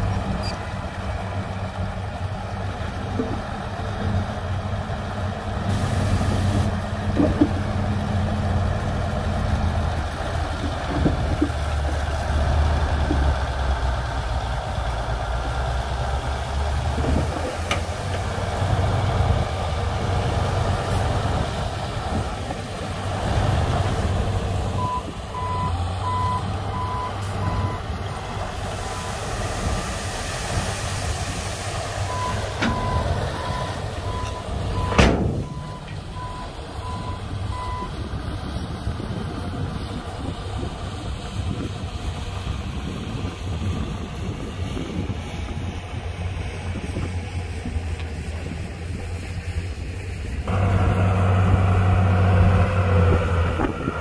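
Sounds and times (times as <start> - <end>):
heavy diesel machinery engine hum: 0.0 - 54.0
reversing alarm beeping: 32.1 - 37.9.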